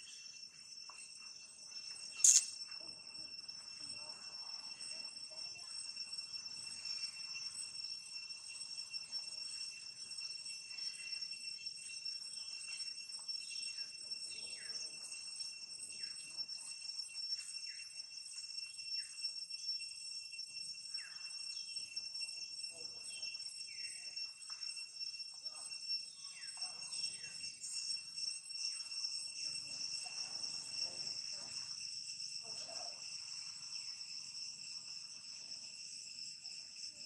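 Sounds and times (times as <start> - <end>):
insect drone: 0.0 - 37.0
short falling chirps: 2.2 - 2.6.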